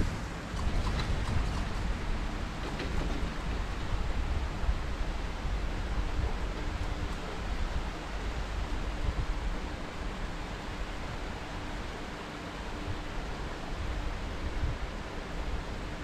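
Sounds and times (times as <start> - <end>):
low rumbling buffets: 0.0 - 11.2
wind rushing on microphone: 0.0 - 11.5, 12.8 - 16.0.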